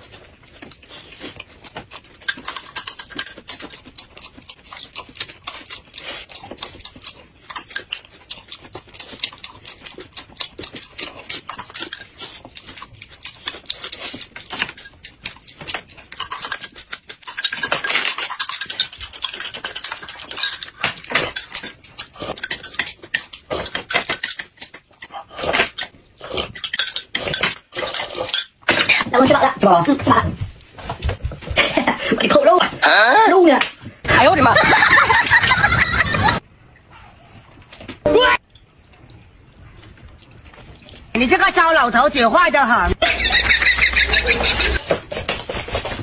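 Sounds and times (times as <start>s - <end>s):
chewing: 0.0s - 29.0s, 38.5s - 41.1s.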